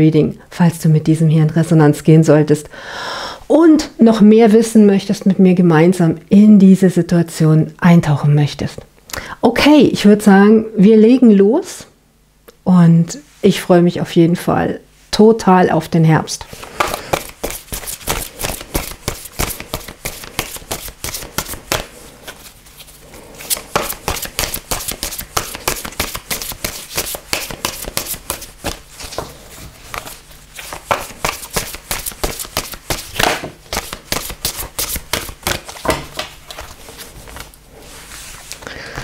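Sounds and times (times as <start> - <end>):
cards being shuffled: 16.5 - 39.0.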